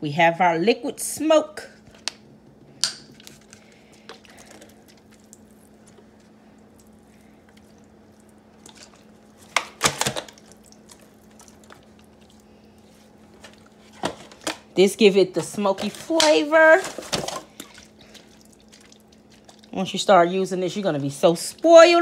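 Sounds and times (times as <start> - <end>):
faint steady hum: 0.0 - 22.0
wet handling of raw ribs: 3.1 - 14.5, 16.2 - 19.8.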